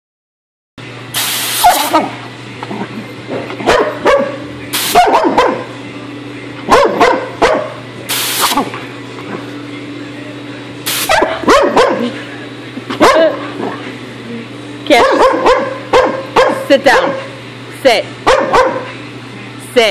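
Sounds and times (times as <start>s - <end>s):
compressed air blasts: 1.2s - 2.0s, 4.7s - 5.0s, 8.1s - 8.7s, 10.9s - 11.2s
puppy barking and yipping: 1.6s - 2.0s, 3.6s - 5.6s, 6.7s - 7.8s, 11.0s - 12.1s, 14.9s - 17.3s, 18.2s - 18.9s.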